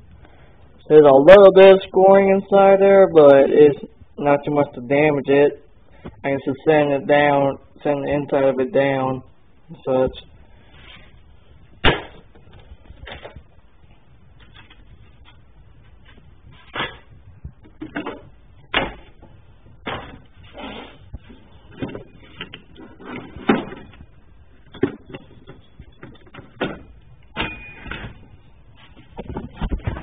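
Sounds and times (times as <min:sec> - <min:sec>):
knocks and clunks of objects handled: 0:14.4 - 0:30.0.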